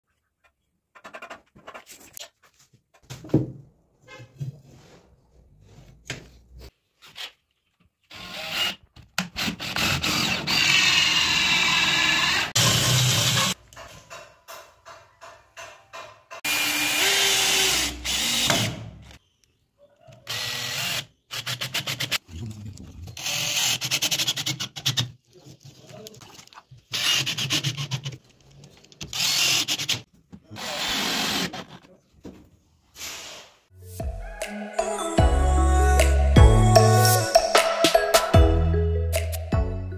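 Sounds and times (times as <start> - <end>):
drill whining: 9.4 - 13.6, 16.5 - 18.8, 20.3 - 22.0, 29.1 - 30.0.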